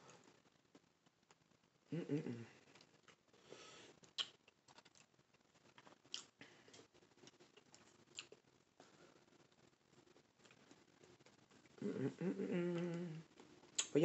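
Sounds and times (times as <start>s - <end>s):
person eating kiwi: 4.0s - 8.4s, 10.4s - 13.9s
sharp wet mouth clicks: 4.1s - 4.4s.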